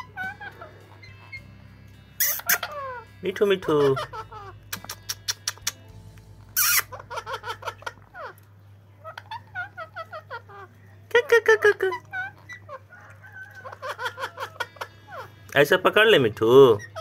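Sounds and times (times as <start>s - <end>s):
parakeet screech: 0.0s - 1.5s, 2.2s - 5.8s, 6.6s - 8.4s, 12.0s - 15.4s, 16.7s - 17.0s
parakeet chirping: 0.0s - 17.0s.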